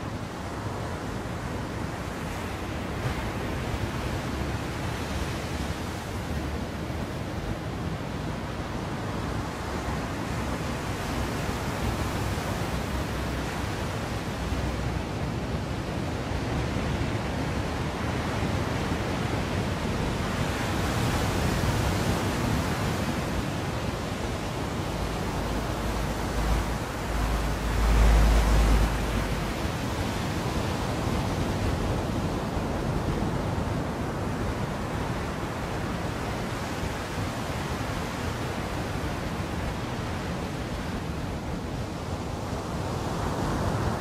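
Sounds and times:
waves breaking on beach: 0.0 - 44.0
wind: 0.0 - 44.0
wave surge with deep rumble: 24.8 - 29.8.

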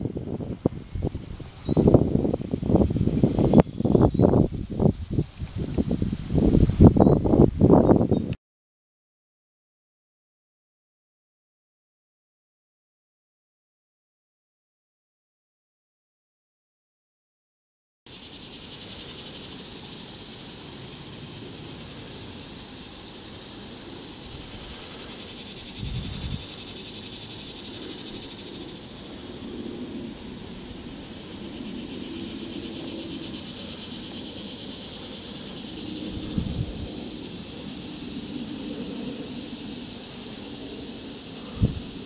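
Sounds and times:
cicadas droning: 0.0 - 8.3, 18.1 - 42.0.

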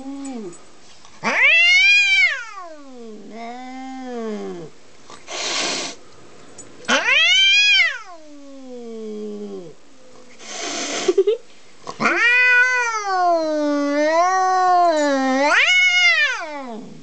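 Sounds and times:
cat yowling: 1.2 - 4.7, 6.9 - 9.7, 12.0 - 17.0
cat hissing: 1.2 - 6.0, 6.9 - 11.2, 12.0 - 17.0.

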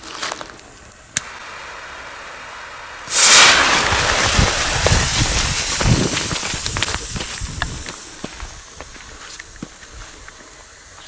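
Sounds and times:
fuse hissing: 0.9 - 11.0
running footsteps on dry leaves: 4.7 - 10.2.

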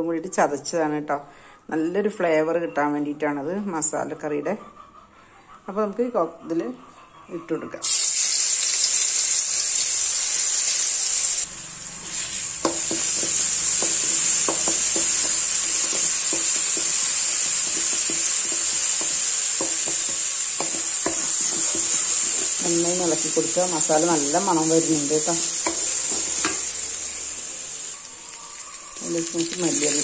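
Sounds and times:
aromatics sizzling in hot oil: 7.8 - 30.0
wooden spatula tapping pan: 12.6 - 22.6.

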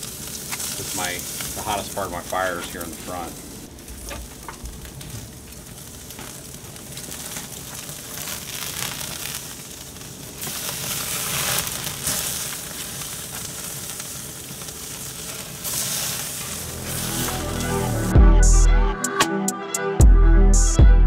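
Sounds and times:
steaks sizzling on grill: 0.0 - 18.1
fat flaring into flames: 3.2 - 18.1.

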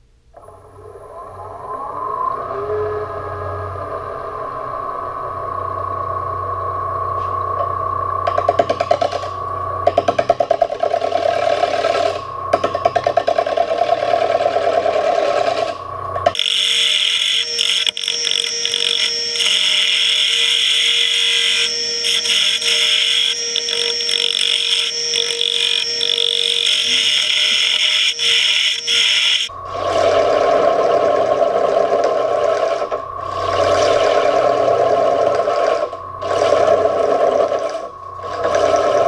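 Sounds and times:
gouge cutting spinning wood: 16.3 - 29.5
wood lathe humming: 16.3 - 29.5
shrill whine with hiss: 16.4 - 29.5.

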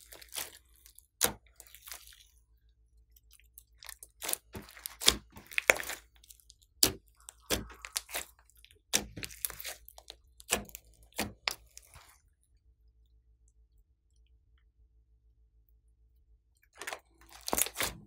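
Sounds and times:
slime popping and crackling: 0.0 - 2.3, 3.2 - 12.1, 16.8 - 18.0.

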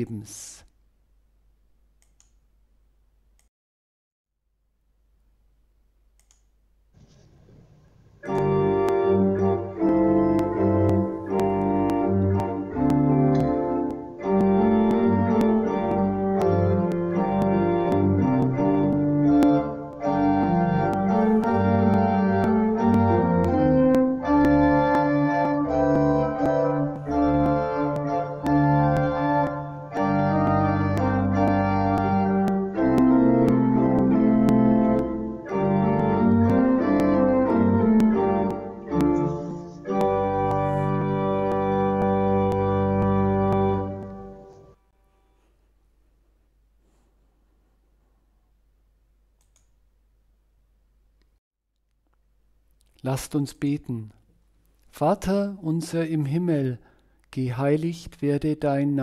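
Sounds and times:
slow organ music: 8.1 - 44.8.

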